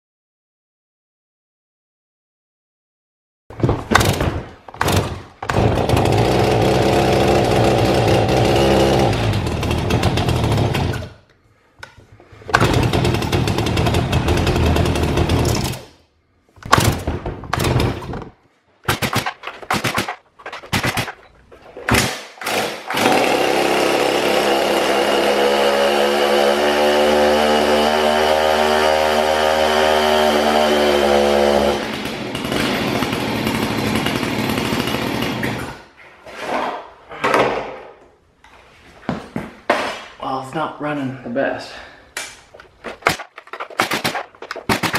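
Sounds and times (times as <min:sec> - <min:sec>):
chainsaw engine running rough: 0:05.5 - 0:11.1, 0:12.6 - 0:15.8, 0:22.5 - 0:35.6.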